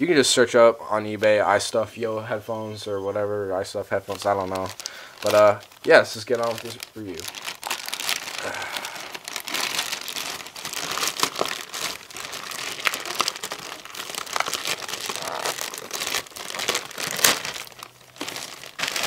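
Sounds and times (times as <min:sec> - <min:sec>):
plastic bag crinkling: 0:04.0 - 0:19.0.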